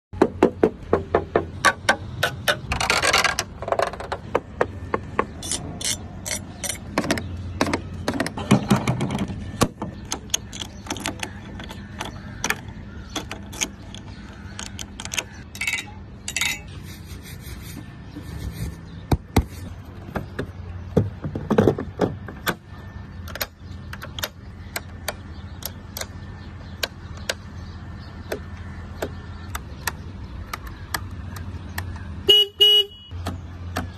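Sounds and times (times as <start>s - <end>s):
switches clicking and panels tapped: 20.1s - 32.1s.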